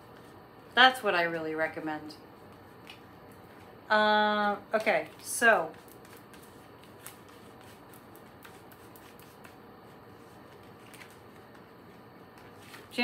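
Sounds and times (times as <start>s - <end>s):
cards rustling: 5.1s - 9.5s, 10.4s - 11.6s.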